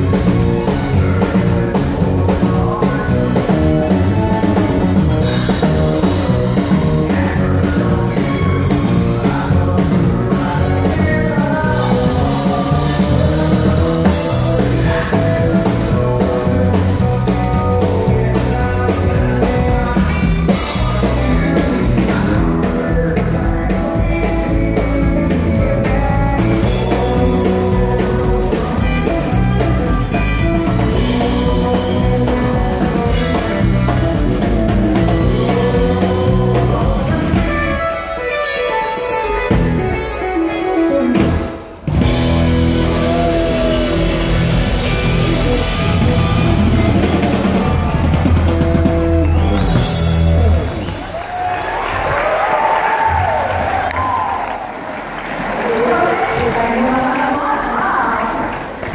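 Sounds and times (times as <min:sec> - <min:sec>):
bass guitar: 0:00.0 - 0:54.4
drums: 0:00.0 - 0:58.9.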